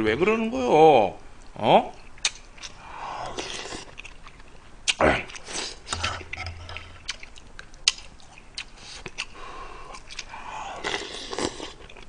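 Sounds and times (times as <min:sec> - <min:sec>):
wet chewing: 0:01.9 - 0:12.0
noodles slurped: 0:04.9 - 0:12.0.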